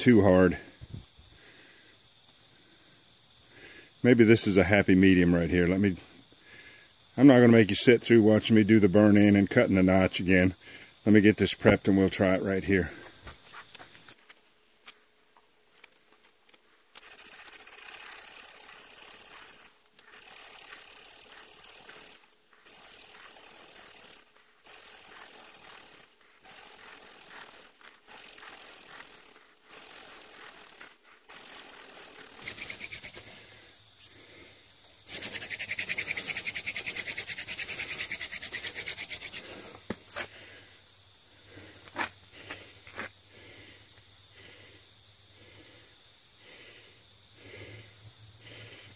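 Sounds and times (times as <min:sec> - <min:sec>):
crickets chirring: 0:00.0 - 0:48.9
wooden spindle grinding on board: 0:17.0 - 0:33.3, 0:35.1 - 0:39.8.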